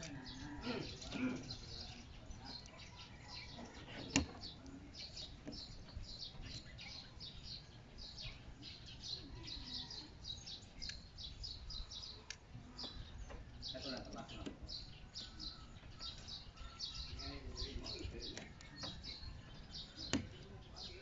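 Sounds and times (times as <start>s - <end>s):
small birds chirping: 0.0s - 21.0s
plastic click: 20.0s - 20.4s.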